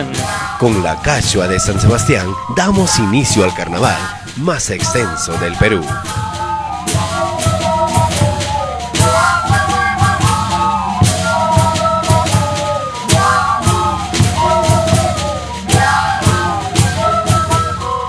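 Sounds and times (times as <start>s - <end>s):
festive dance music: 0.0s - 18.0s.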